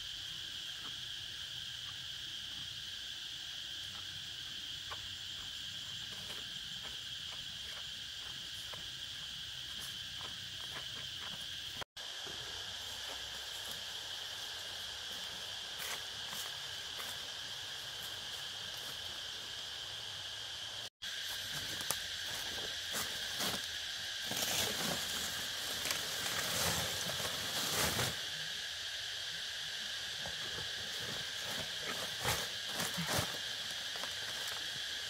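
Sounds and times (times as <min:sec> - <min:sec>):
insects trilling: 0:00.0 - 0:35.0.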